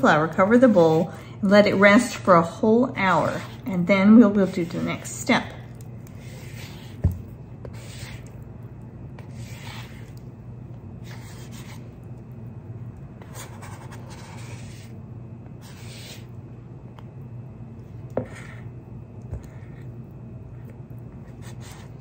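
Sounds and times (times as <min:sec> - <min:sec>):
rubber scraper rasping dough in bowl: 0:00.2 - 0:08.4.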